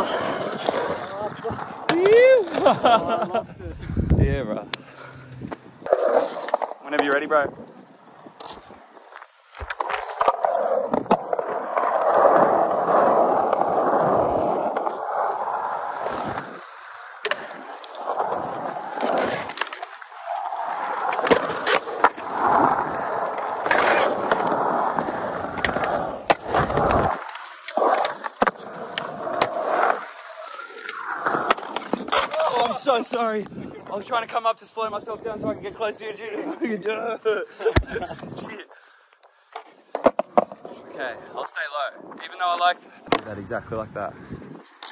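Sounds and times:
skateboard wheels rolling on concrete: 0:00.0 - 0:44.9
skateboard hitting coping: 0:09.6 - 0:32.8.

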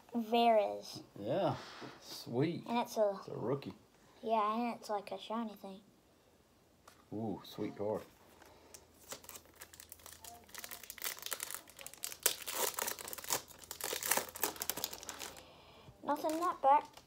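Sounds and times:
foil wrappers crinkling: 0:08.3 - 0:15.5, 0:16.1 - 0:17.0.

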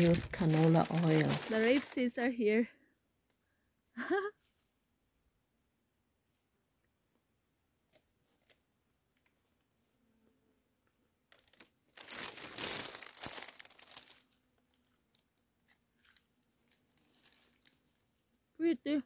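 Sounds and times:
paper bag crinkling: 0:00.0 - 0:02.2, 0:11.3 - 0:15.4, 0:16.0 - 0:18.1.

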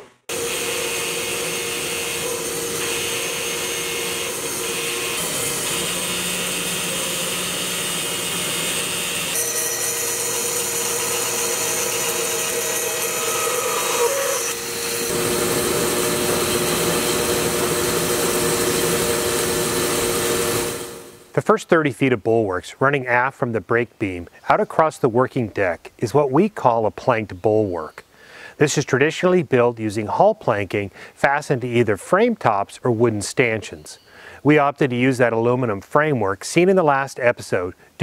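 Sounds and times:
band saw cutting wood: 0:00.0 - 0:21.0
machine hum: 0:00.0 - 0:21.2.

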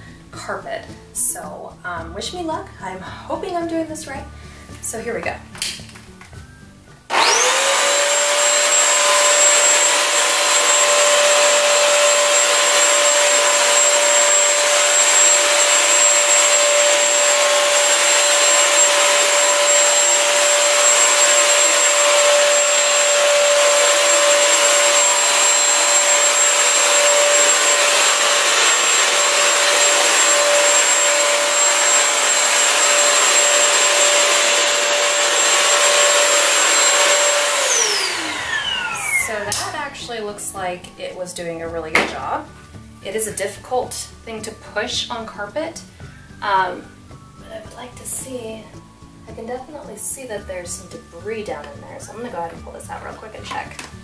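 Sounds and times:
vacuum cleaner whining: 0:07.1 - 0:40.2.

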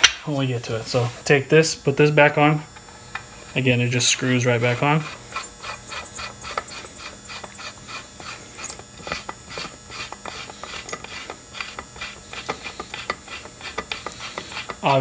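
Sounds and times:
threads clicking and scraping: 0:04.2 - 0:15.0.

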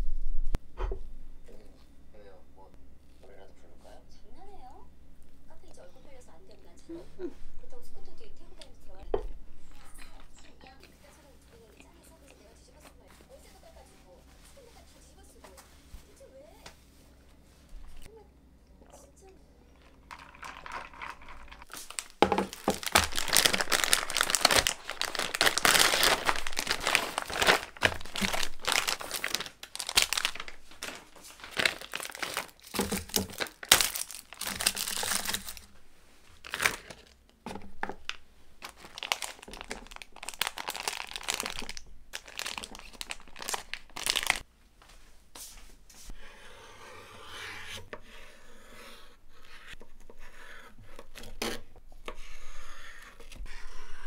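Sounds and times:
plastic packaging crinkling and tearing: 0:19.8 - 0:35.7, 0:36.4 - 0:37.2, 0:37.8 - 0:44.5.

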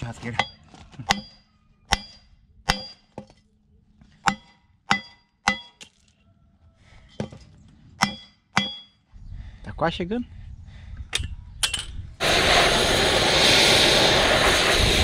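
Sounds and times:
hammer ringing on steel: 0:00.3 - 0:03.1, 0:04.3 - 0:05.8, 0:08.0 - 0:09.0.

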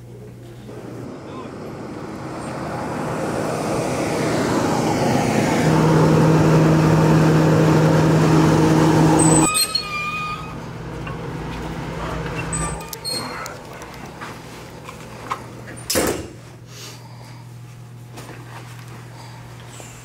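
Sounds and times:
diesel bus engine running: 0:00.0 - 0:15.8.

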